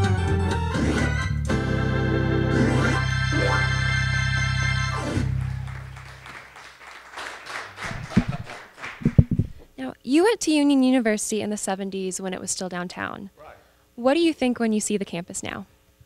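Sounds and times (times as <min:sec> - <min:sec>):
electronic organ playing a hymn: 0:00.0 - 0:06.1
sharp claps or knocks: 0:05.7 - 0:09.6.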